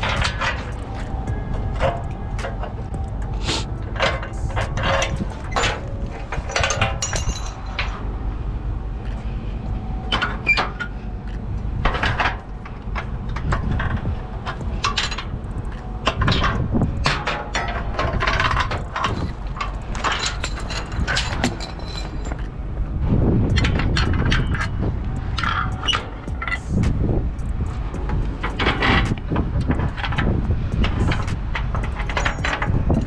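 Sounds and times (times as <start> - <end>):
metal clanks and knocks: 0.0 - 8.0, 10.0 - 33.0
steady low rumble: 0.0 - 33.0.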